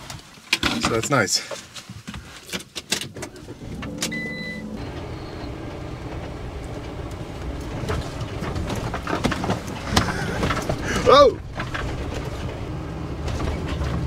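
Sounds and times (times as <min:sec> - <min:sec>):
van tyres and engine rumbling: 0:00.0 - 0:14.0
knocks and rattles: 0:05.6 - 0:14.0.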